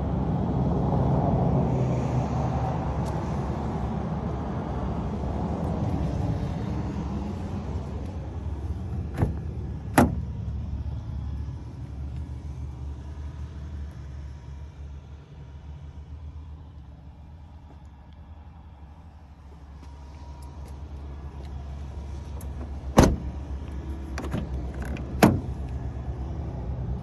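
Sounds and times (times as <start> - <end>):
car door latch clicks: 9.1 - 10.3, 22.4 - 23.4, 24.1 - 25.8.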